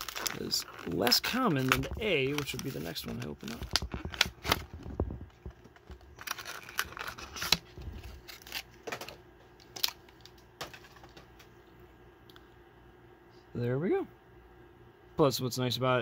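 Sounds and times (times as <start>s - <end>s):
plastic packaging tearing and crinkling: 0.0s - 11.2s.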